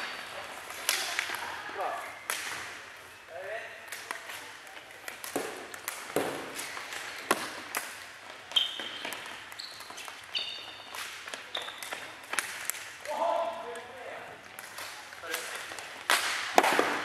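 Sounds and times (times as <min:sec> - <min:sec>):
shoes squeaking on floor: 0:05.4 - 0:12.5.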